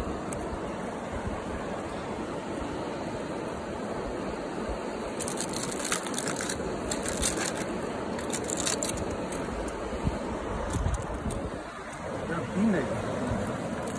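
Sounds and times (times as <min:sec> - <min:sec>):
river rushing: 0:00.0 - 0:13.9
crackling crunching sounds: 0:05.1 - 0:09.8.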